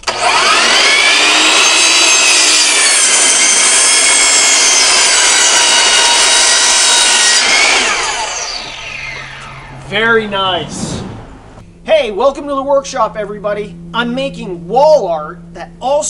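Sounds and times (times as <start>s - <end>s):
saw blade cutting wood: 0.0s - 10.1s
miter saw whining: 0.0s - 11.7s.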